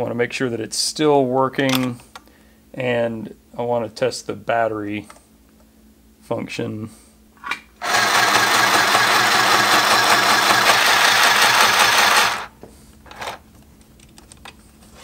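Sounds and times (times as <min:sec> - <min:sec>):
sewing machine stitching: 0:07.8 - 0:12.5.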